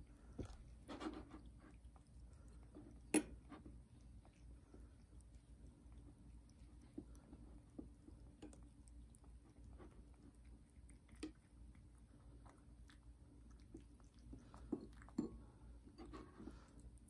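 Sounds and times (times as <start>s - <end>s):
cat chewing and licking: 0.0s - 17.0s.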